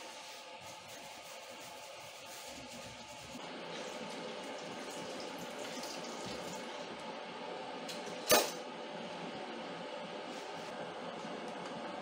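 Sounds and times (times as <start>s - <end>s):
water running and splashing in sink: 2.4s - 6.9s.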